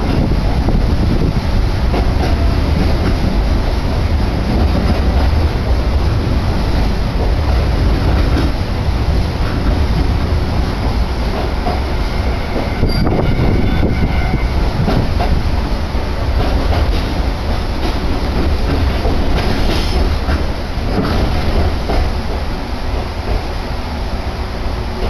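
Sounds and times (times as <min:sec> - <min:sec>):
wheels clacking over rail joints: 0:00.0 - 0:23.5
train running gear rumble: 0:00.0 - 0:25.0.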